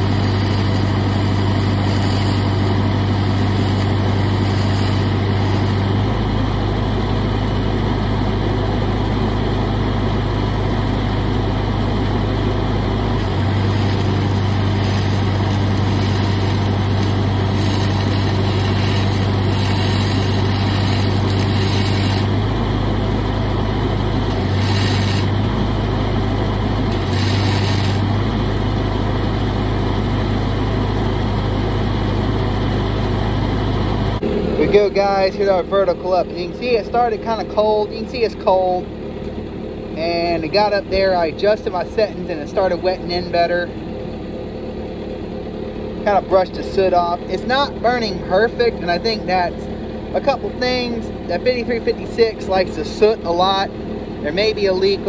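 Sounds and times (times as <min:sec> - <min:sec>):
welding arc hissing and crackling: 0:00.0 - 0:06.7, 0:13.1 - 0:23.4, 0:24.1 - 0:28.7
welder engine running: 0:00.0 - 0:55.0.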